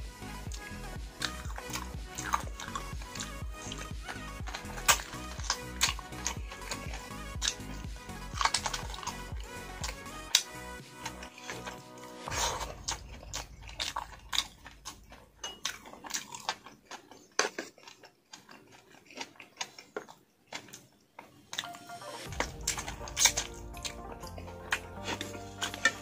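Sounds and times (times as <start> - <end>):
soft background music: 0.0 - 15.8, 21.5 - 26.0
person chewing meat off bones: 0.0 - 26.0.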